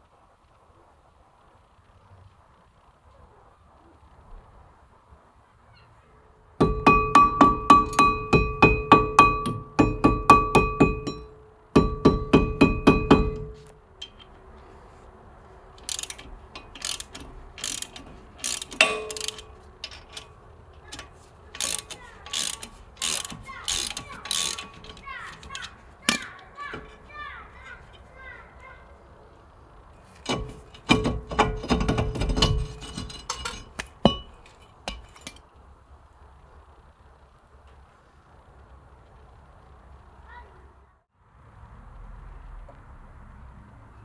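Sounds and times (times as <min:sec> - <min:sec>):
ratchet wrench clicking: 0:06.6 - 0:14.4, 0:15.8 - 0:27.1
metal disc ringing: 0:06.6 - 0:14.5, 0:15.8 - 0:28.3, 0:30.0 - 0:35.5.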